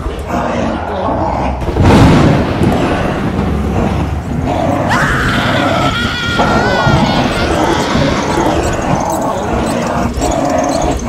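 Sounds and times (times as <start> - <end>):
thunderclap with rolling rumble: 1.6 - 11.0
long high cry: 4.9 - 9.3.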